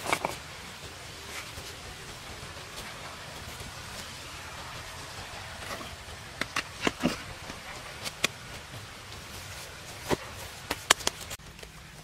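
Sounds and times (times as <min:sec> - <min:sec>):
steady outdoor hiss: 0:00.0 - 0:12.0
stone knocking and scraping: 0:05.6 - 0:08.5.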